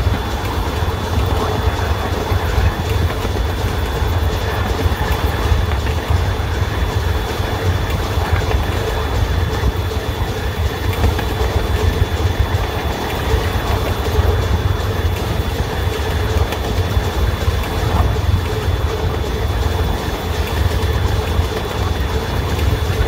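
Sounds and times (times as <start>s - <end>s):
high constant whine: 0.0s - 23.0s
train rumbling on track: 0.0s - 23.0s.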